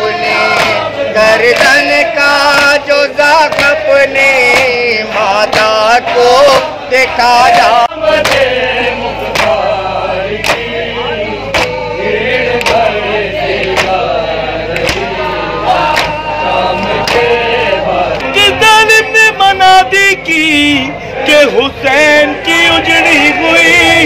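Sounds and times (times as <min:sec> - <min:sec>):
man reciting: 0:00.0 - 0:11.9, 0:14.4 - 0:24.0
men chanting in chorus: 0:00.0 - 0:24.0
chest-beating slaps: 0:08.2 - 0:08.5, 0:09.3 - 0:09.6, 0:10.4 - 0:10.7, 0:11.5 - 0:11.8, 0:13.6 - 0:14.0, 0:14.7 - 0:15.1, 0:15.9 - 0:16.2.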